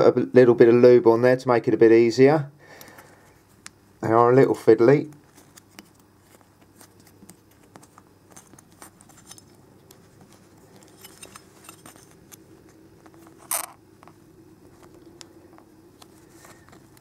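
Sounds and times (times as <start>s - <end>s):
faint clicks and rustles: 5.1s - 17.0s.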